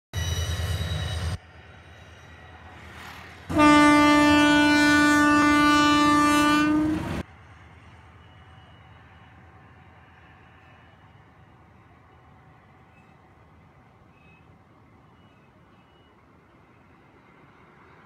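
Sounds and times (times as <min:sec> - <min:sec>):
locomotive air horn blast: 0:03.5 - 0:07.2.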